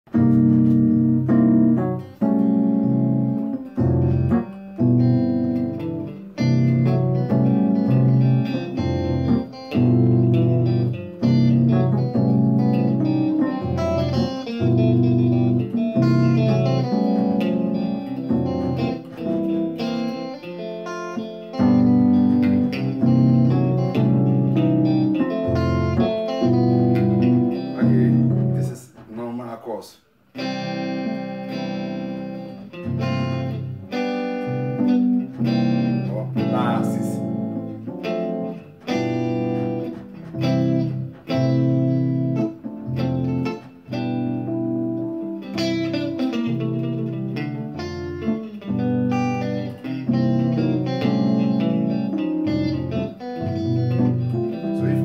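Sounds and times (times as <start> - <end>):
bass line: 0.1 - 20.2, 21.6 - 28.8, 45.7 - 55.0
electronic keyboard chords: 0.1 - 29.0, 30.4 - 55.0
electric guitar: 0.1 - 29.1, 30.3 - 55.0.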